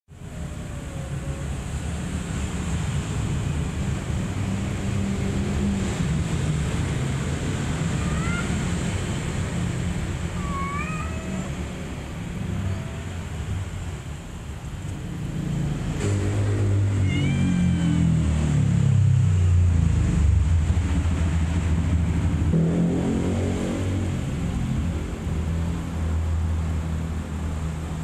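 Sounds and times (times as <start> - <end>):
kitten mewing: 7.8 - 8.9, 10.3 - 13.5, 16.9 - 18.1.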